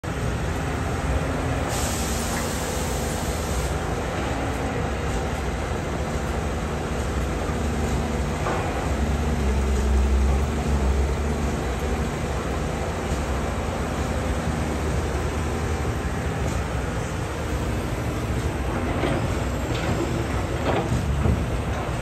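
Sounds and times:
excavator diesel engine running: 0.1 - 22.0
brief hiss: 1.7 - 3.8.

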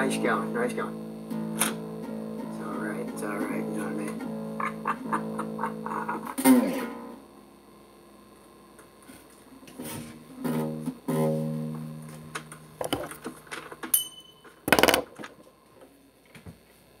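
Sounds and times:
guitar chord plucked: 0.0 - 7.9, 9.6 - 14.5.

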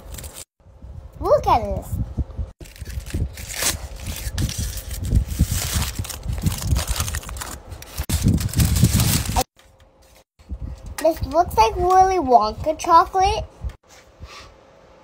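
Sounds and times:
chocolate wrapper crinkling and tearing: 2.6 - 9.5.

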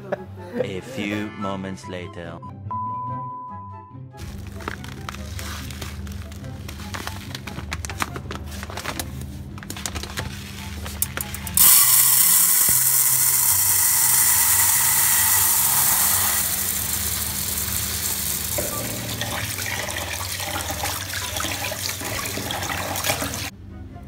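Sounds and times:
tap water pouring into pot: 11.6 - 23.5.

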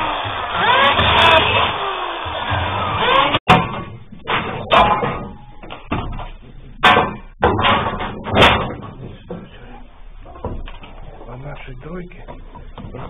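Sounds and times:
metal frames clattering and knocking: 3.1 - 13.0.

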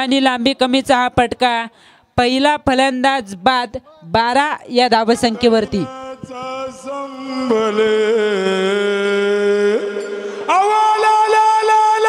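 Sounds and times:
person singing a long note: 5.7 - 12.0.

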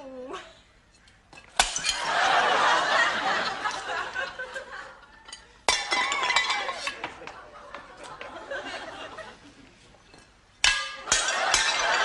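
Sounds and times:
plate smashing on a hard floor: 1.6 - 2.1, 5.7 - 7.2, 10.6 - 12.0
studio audience laughing: 2.0 - 5.0, 7.0 - 9.7.

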